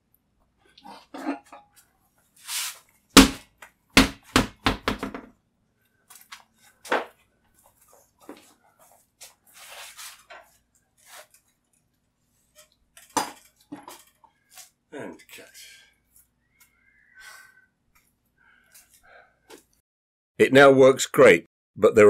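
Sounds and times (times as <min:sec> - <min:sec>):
rustling scrapes: 0:02.3 - 0:02.9, 0:07.6 - 0:11.6.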